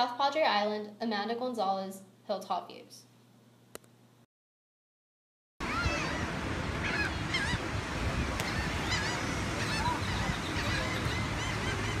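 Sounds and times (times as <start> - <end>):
gulls calling: 5.6 - 12.0
surf rushing: 5.6 - 12.0.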